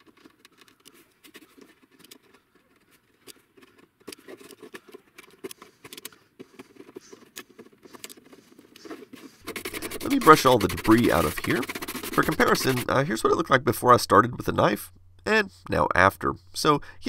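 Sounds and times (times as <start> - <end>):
knife blade scraping plastic: 0.0 - 12.9.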